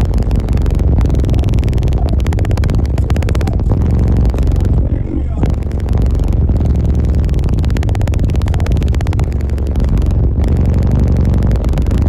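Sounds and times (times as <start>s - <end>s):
loud distorted car audio bass: 0.0s - 12.0s.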